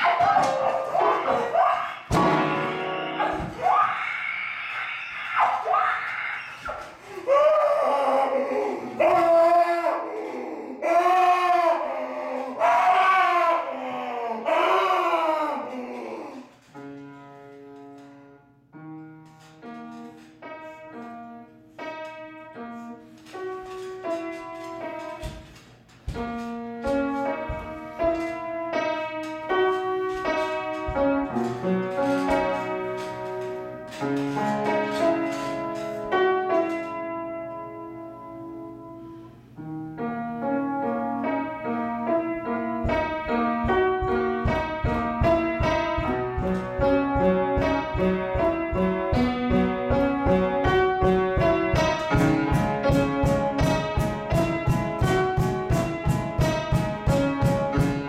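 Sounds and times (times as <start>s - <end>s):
upright piano playing: 0.0s - 4.0s, 16.7s - 58.0s.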